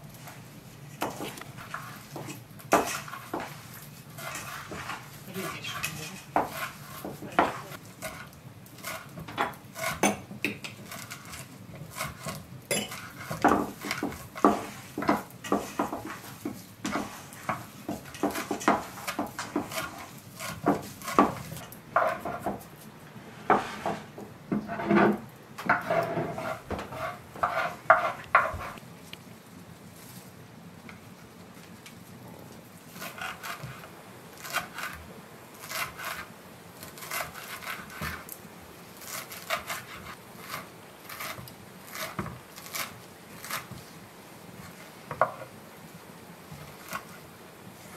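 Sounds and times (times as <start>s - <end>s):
knife chopping on wooden board: 6.4s - 22.6s.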